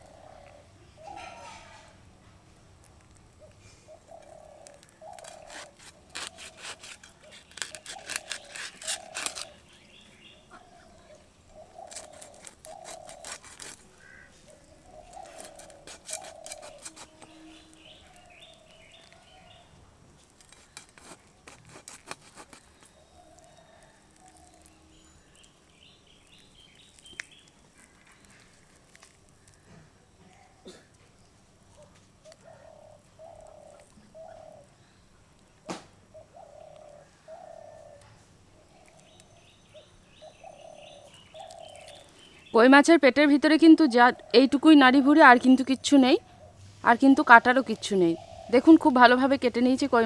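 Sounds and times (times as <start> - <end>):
birds chirping: 3.3 - 19.9, 22.5 - 50.0
fish scraped against blade: 5.2 - 9.6, 15.3 - 17.4, 20.4 - 22.7.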